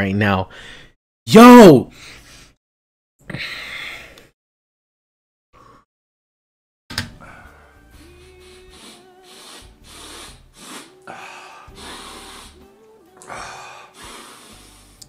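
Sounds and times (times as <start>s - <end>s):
man sniffing through nose: 7.8s - 12.7s, 13.3s - 15.0s.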